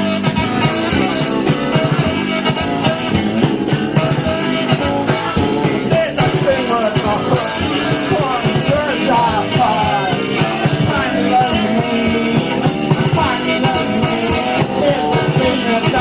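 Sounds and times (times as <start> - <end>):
drums: 0.0 - 16.0
electric guitar: 0.0 - 16.0
saxophone: 0.0 - 16.0
person singing: 4.0 - 16.0.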